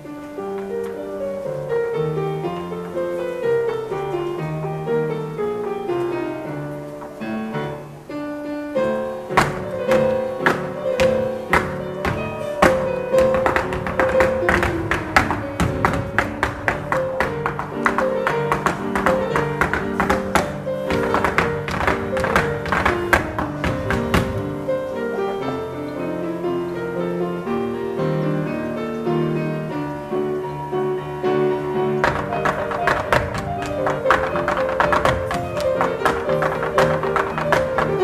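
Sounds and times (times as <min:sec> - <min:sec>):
grand piano playing: 0:00.0 - 0:38.0
flamenco dance stamps: 0:09.2 - 0:24.6, 0:31.9 - 0:38.0.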